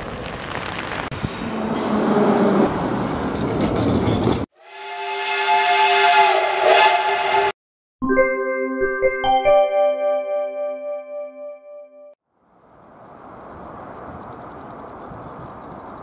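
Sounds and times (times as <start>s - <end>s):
metro train rushing into station: 1.2s - 7.6s
steam locomotive whistle: 4.6s - 7.6s.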